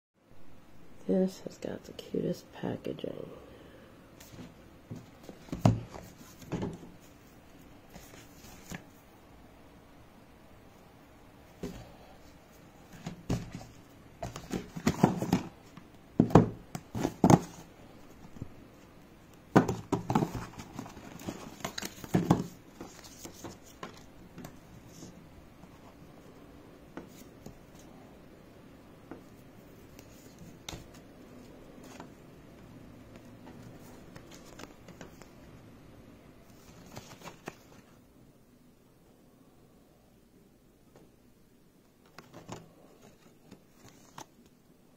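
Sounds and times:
paper and cardboard rustling: 0:04.2 - 0:09.0, 0:11.6 - 0:18.5, 0:19.5 - 0:26.0, 0:33.4 - 0:35.3, 0:36.5 - 0:38.0, 0:42.1 - 0:44.4.

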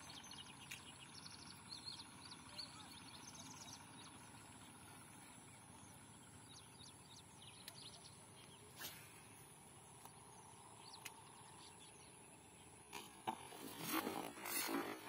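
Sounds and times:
bird chirps: 0:00.0 - 0:09.4
soft clicks: 0:10.9 - 0:11.4.

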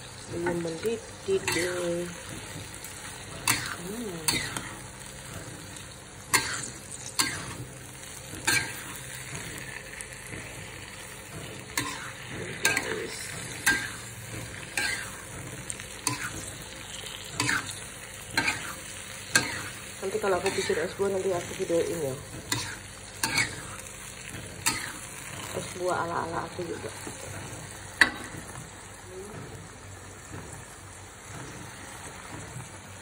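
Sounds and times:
food sizzling: 0:00.0 - 0:33.0
metal spatula scraping a wok: 0:01.4 - 0:01.9, 0:11.6 - 0:25.7.

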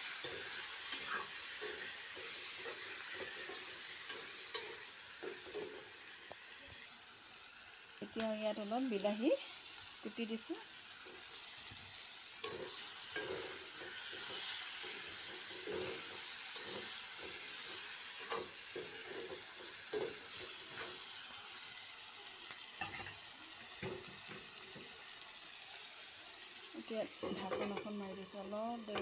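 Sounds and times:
spoon scraping pan: 0:00.0 - 0:06.1, 0:12.4 - 0:21.2, 0:27.0 - 0:29.0
food sizzling in hot oil: 0:00.0 - 0:29.0.

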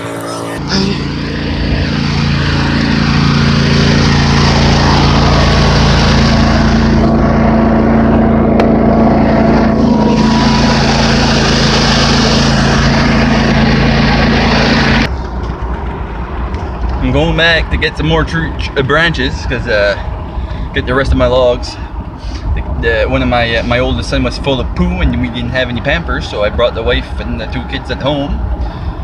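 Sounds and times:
small engine running: 0:00.0 - 0:17.4.

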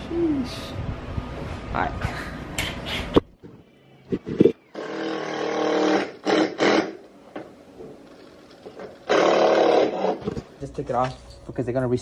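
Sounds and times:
power drill whirring: 0:04.7 - 0:07.1, 0:08.8 - 0:10.2.

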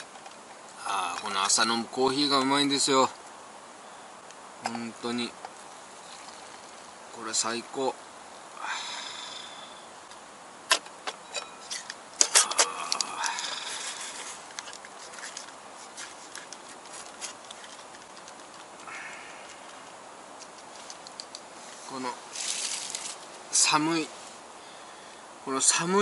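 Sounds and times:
packet rustling: 0:11.6 - 0:21.5, 0:22.2 - 0:23.4.

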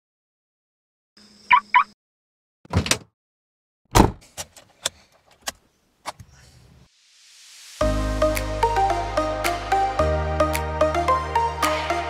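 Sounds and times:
car door shutting: 0:03.9 - 0:04.3.

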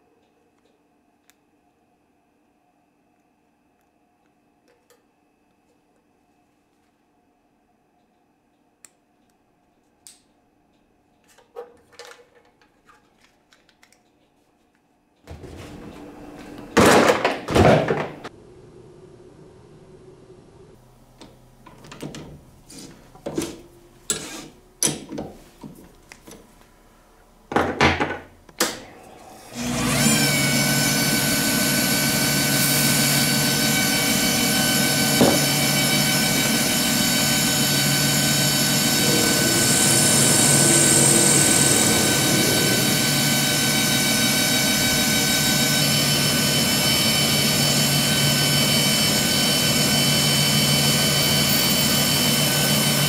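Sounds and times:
lathe running with whine: 0:28.9 - 0:53.0.

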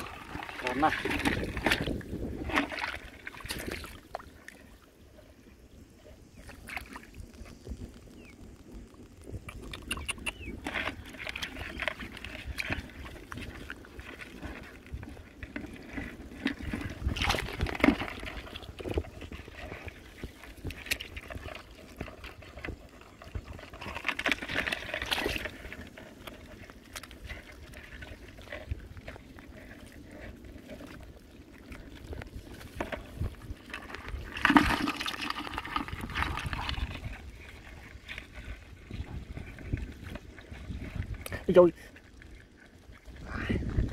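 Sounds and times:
hands splashing in muddy water: 0:00.0 - 0:04.6, 0:09.6 - 0:22.6, 0:33.7 - 0:41.2
small clicks and rustles: 0:06.5 - 0:41.4.

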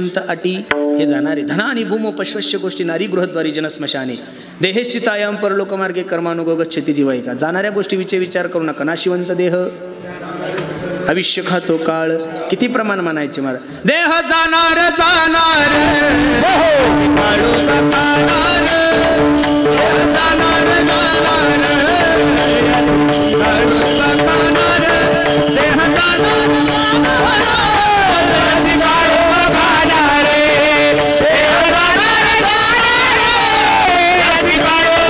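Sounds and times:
held accompaniment notes: 0:00.7 - 0:03.5
percussion strokes: 0:00.7 - 0:03.5, 0:15.7 - 0:35.0
man singing into a microphone: 0:13.8 - 0:35.0.

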